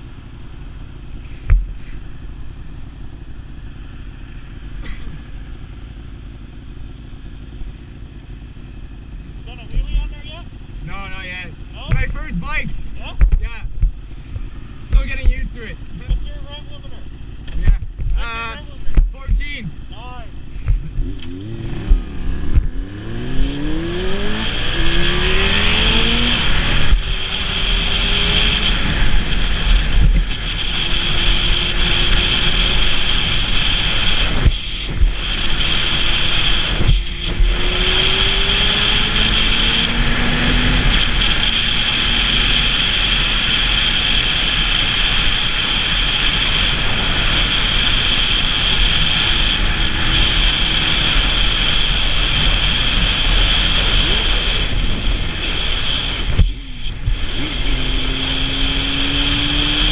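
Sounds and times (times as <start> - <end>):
motorcycle engine accelerating: 0.0 - 59.9
wind rush over microphone: 20.7 - 59.9.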